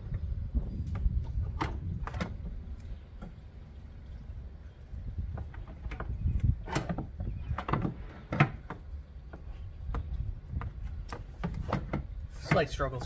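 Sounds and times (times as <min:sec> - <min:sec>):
plastic airbox knocking and scraping: 0:05.3 - 0:13.0.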